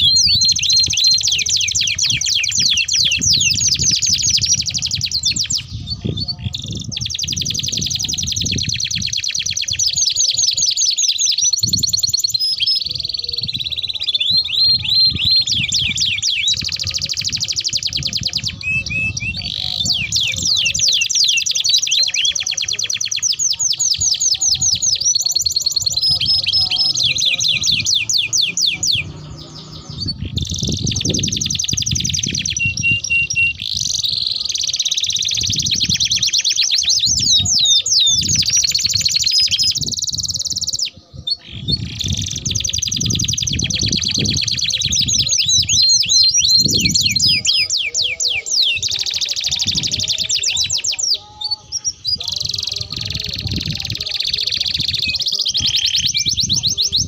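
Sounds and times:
canary singing rolling trills: 0.0s - 57.0s.

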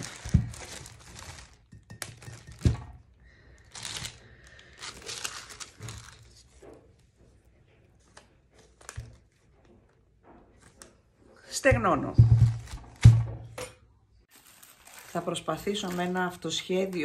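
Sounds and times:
plastic sheeting crinkling: 0.0s - 2.8s, 3.5s - 7.0s, 14.3s - 17.0s.

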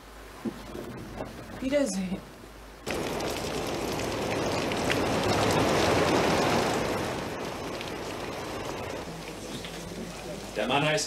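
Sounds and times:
heavy rain on cobblestones: 2.8s - 11.0s.

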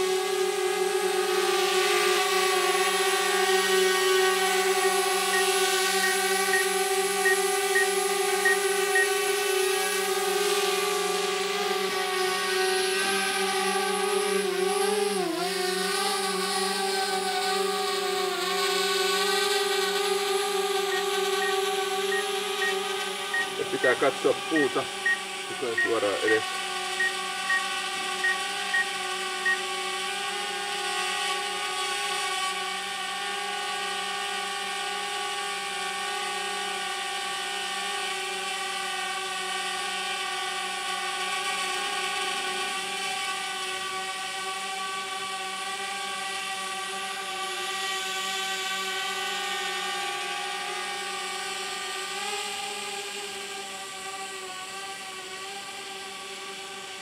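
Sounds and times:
drone propellers whining: 0.2s - 30.3s
short electronic beeps: 5.3s - 9.1s, 20.9s - 26.4s, 27.0s - 27.6s.

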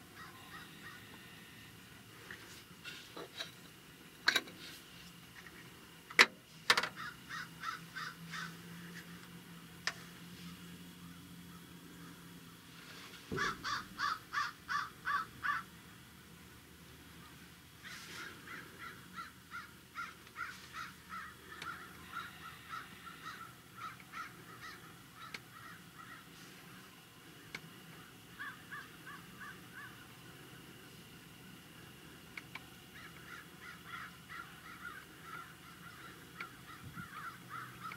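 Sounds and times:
birds calling: 0.0s - 4.4s, 6.8s - 15.8s, 16.8s - 37.9s.

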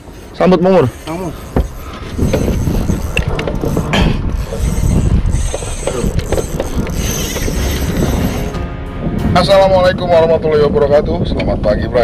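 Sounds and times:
fishing reels clicking and rattling: 0.0s - 8.6s.

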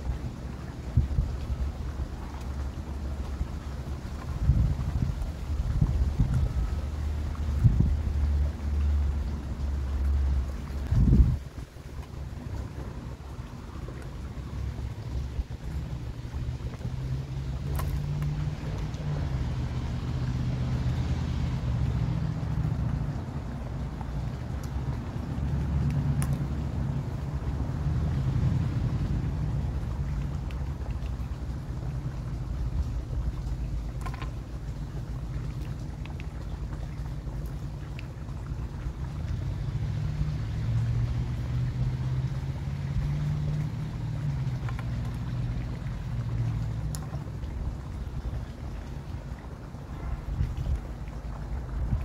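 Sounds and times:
motor running with droning hum: 0.0s - 52.0s.

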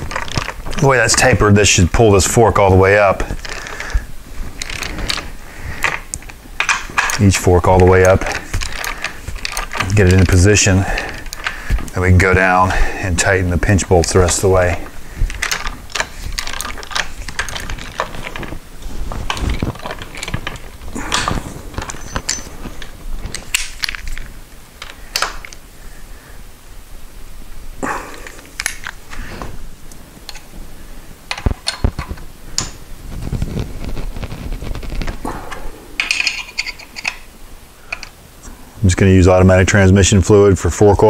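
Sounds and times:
metallic tool clicks and clinks: 36.0s - 37.3s.

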